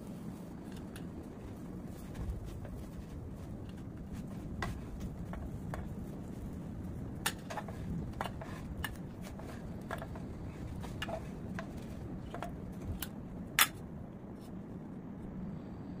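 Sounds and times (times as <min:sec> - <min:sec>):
low steady hum: 0:00.0 - 0:16.0
spatula scraping frying pan: 0:07.2 - 0:12.6.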